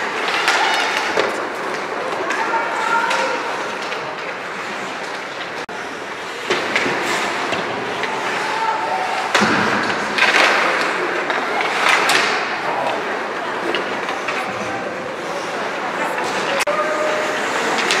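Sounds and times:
sports match noise: 0:00.0 - 0:18.0.

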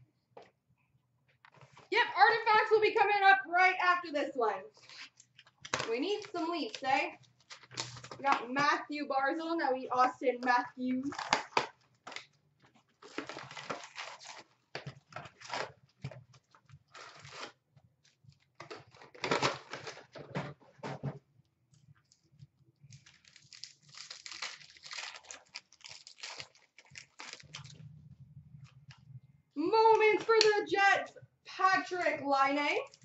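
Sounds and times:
card packs tearing and crinkling: 0:04.8 - 0:08.3, 0:11.0 - 0:12.3, 0:12.9 - 0:16.1, 0:16.8 - 0:17.6, 0:18.4 - 0:20.3, 0:22.9 - 0:27.8.

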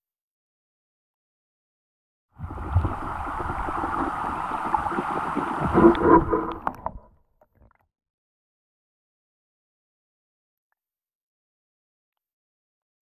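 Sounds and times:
muffled underwater stream rushing: 0:02.4 - 0:07.1
bubbly tones and clicks: 0:02.4 - 0:07.8.

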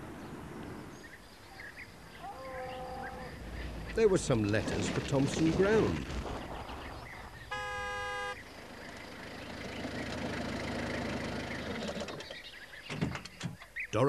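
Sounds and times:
short horn toot: 0:07.5 - 0:08.4
van engine running: 0:07.5 - 0:12.8.

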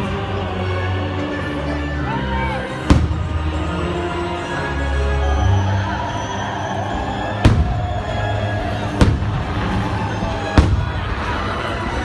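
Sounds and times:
loud music: 0:00.0 - 0:12.0
firework bangs: 0:02.9 - 0:03.6, 0:07.4 - 0:12.0.

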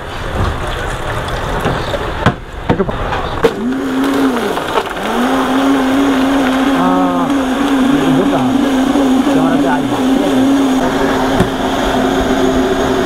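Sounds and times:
electric blender motor running: 0:03.4 - 0:13.0.

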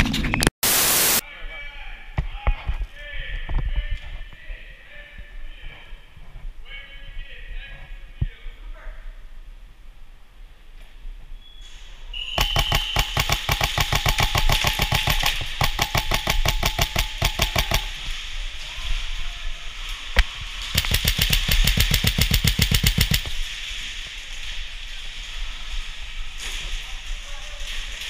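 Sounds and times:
airsoft rifle firing full auto: 0:12.4 - 0:18.1, 0:20.7 - 0:23.3.

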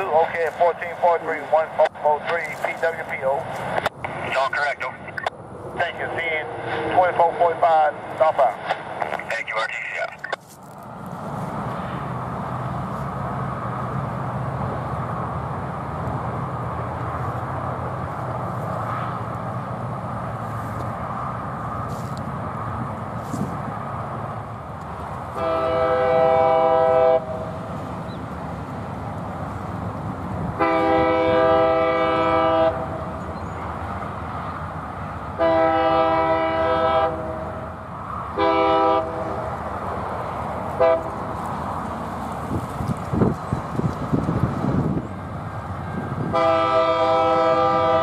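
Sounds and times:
diesel engine rumble: 0:00.0 - 0:48.0
locomotive air horn blasts: 0:25.3 - 0:27.5, 0:30.6 - 0:33.0, 0:35.4 - 0:37.6, 0:38.4 - 0:39.4, 0:40.8 - 0:41.2, 0:45.9 - 0:48.0.

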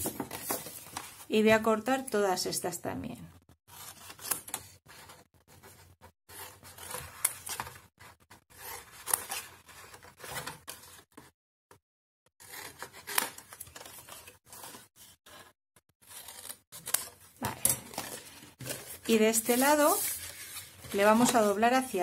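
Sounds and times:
paper rustling: 0:00.0 - 0:01.3, 0:12.4 - 0:22.0.

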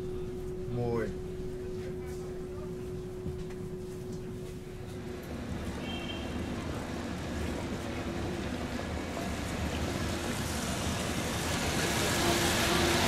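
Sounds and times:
trolleybus tyres and drive rumbling: 0:04.5 - 0:13.0.

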